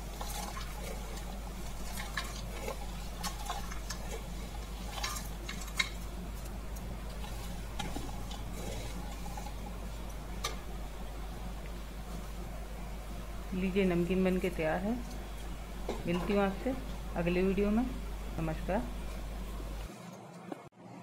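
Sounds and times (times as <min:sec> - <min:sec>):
low hum: 0:00.0 - 0:19.9.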